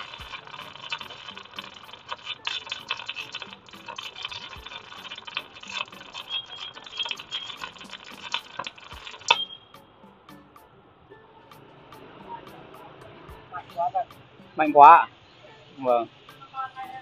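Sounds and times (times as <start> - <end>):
welding arc crackling: 0.0 - 9.6
welding arc snap: 0.0 - 9.6.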